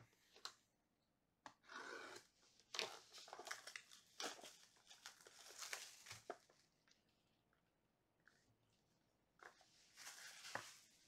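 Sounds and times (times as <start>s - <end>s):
plastic shrink wrap crinkling: 2.7s - 7.0s, 9.4s - 11.0s.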